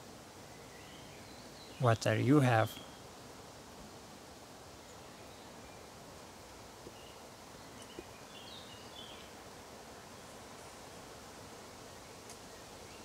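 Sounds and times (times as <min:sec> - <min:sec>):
faint forest ambience: 0:00.0 - 0:13.0
soft bird chirps: 0:00.5 - 0:03.1, 0:06.9 - 0:09.4.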